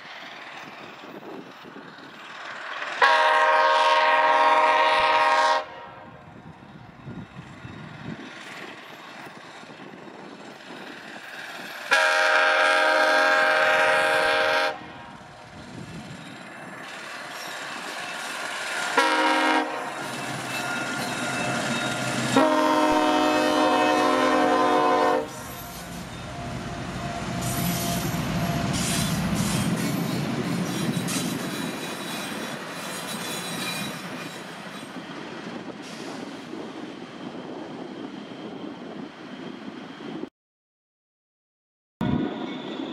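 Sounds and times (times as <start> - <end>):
train rumbling with wheel clatter: 0.0 - 40.3
locomotive horn blasts: 3.0 - 6.2, 11.9 - 15.2, 18.9 - 20.0, 22.3 - 25.5.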